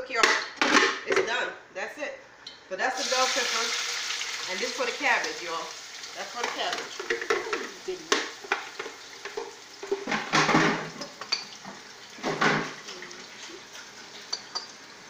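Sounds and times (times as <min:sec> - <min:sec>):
pans and utensils clattering: 0:00.2 - 0:01.4, 0:06.2 - 0:14.8.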